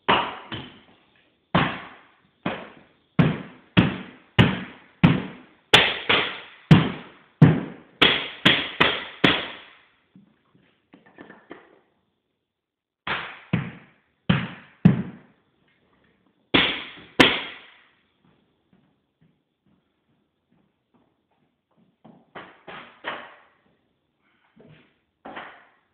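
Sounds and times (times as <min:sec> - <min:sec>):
nailer bang and hiss: 0:01.6 - 0:09.9, 0:16.6 - 0:18.0.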